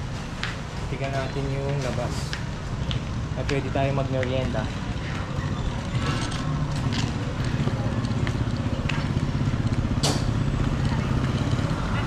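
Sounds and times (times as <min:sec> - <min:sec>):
motorcycles passing: 0:00.0 - 0:12.0
traffic engine hum: 0:00.0 - 0:12.0.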